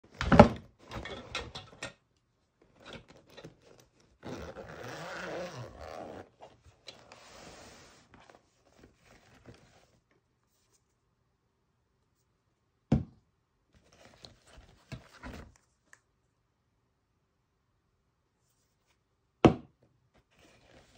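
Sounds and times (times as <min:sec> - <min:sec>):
zipper pulled open: 0:03.5 - 0:08.4.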